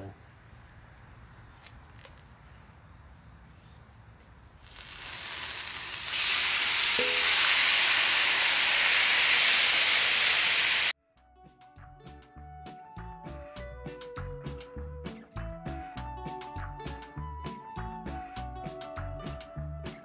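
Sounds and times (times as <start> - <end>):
chicken sizzling on griddle: 4.6 - 10.9
background music: 11.0 - 20.0.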